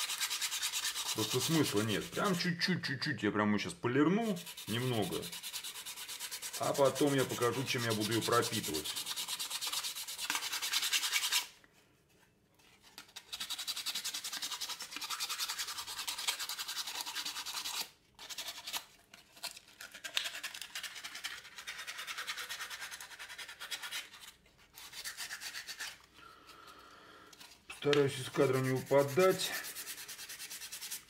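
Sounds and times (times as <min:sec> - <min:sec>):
sandpaper rasping on wood: 0:00.0 - 0:02.5, 0:04.2 - 0:11.5, 0:13.4 - 0:17.9, 0:24.8 - 0:26.0, 0:27.9 - 0:31.0.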